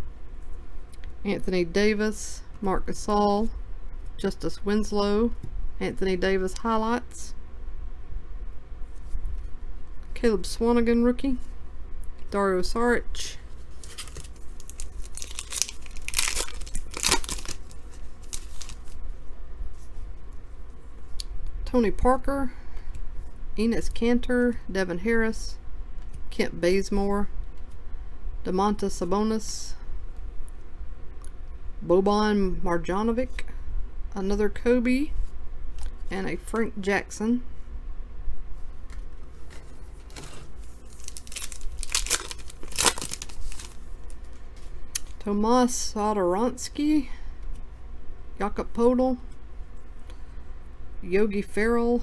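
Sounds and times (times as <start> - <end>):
wrapper tearing and crinkling: 13.8 - 19.0, 40.1 - 44.2.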